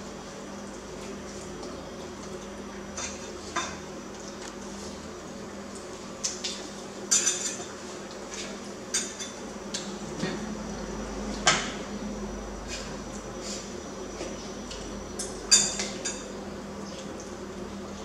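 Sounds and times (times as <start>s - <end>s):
steady low hum: 0.0s - 18.0s
cutlery clinking against dishes: 7.1s - 7.7s, 8.3s - 9.4s, 15.2s - 16.3s.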